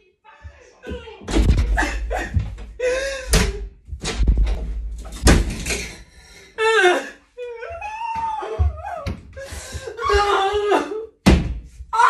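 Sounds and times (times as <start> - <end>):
door slamming with rattle: 1.3 - 6.0.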